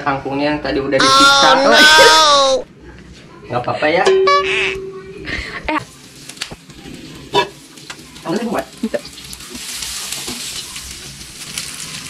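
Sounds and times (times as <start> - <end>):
oil sizzling in a wok: 5.8 - 12.0.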